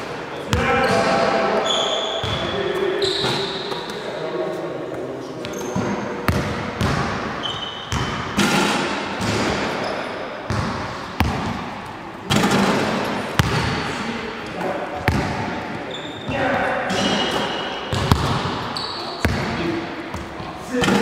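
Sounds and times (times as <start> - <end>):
basketballs bouncing on gym floor: 0.5 - 1.2, 2.2 - 2.5, 5.4 - 9.8, 10.5 - 13.9, 15.0 - 21.0
high shoe squeaks: 1.6 - 4.1, 5.4 - 6.1, 7.4 - 8.2, 15.8 - 18.0, 18.7 - 19.2.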